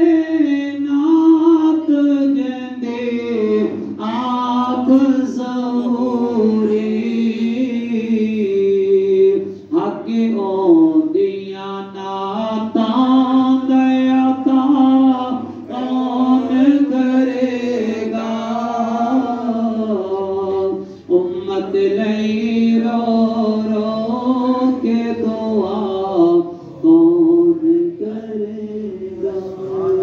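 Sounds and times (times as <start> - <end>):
man chanting into a microphone: 0.0 - 30.0.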